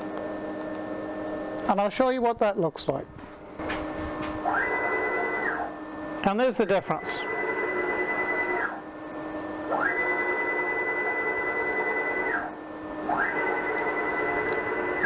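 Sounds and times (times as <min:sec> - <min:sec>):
stepper motors whining: 0:03.7 - 0:15.0.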